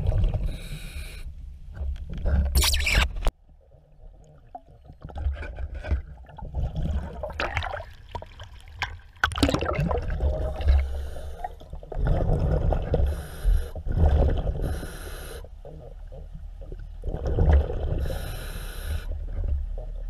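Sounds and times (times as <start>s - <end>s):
water sloshing and gurgling: 0.0s - 20.0s
knocks and splashes: 4.4s - 10.8s.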